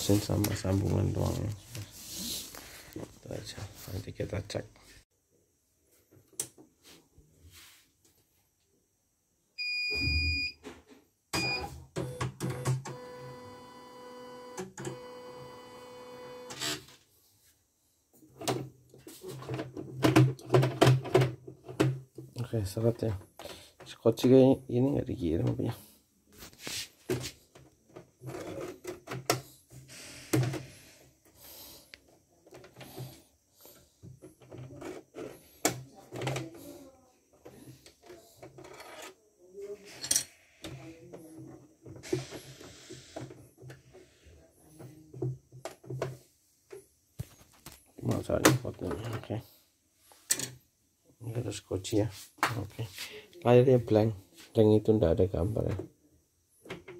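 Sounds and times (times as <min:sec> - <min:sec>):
hands rubbing plastic: 0:26.4 - 0:27.4.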